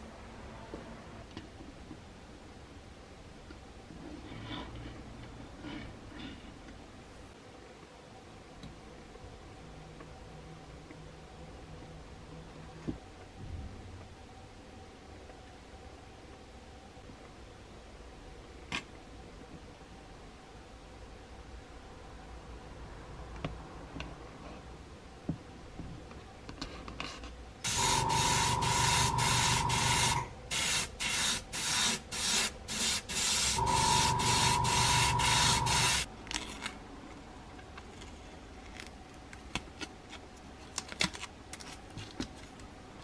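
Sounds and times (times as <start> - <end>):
spray paint hissing: 27.7 - 36.1.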